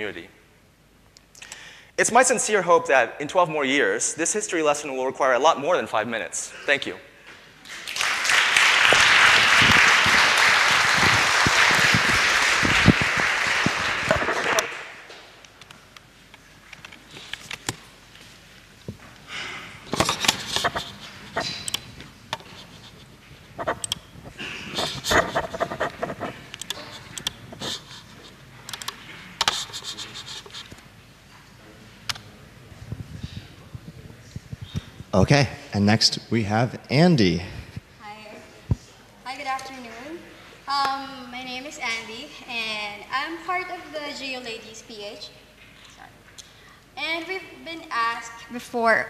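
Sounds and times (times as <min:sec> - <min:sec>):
audience applauding: 0:07.7 - 0:15.1
microphone handling noise: 0:09.4 - 0:14.7, 0:19.9 - 0:28.2, 0:32.7 - 0:35.3, 0:37.5 - 0:38.0
keyboard typing: 0:23.6 - 0:24.1.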